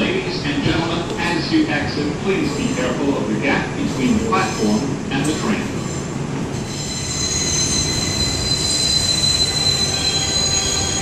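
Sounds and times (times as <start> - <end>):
train rumble: 0.0 - 11.0
wheel squeal on rails: 5.9 - 11.0.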